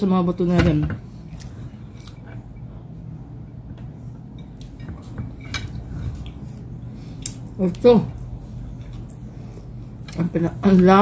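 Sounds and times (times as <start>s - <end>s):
chewing: 4.5s - 10.3s.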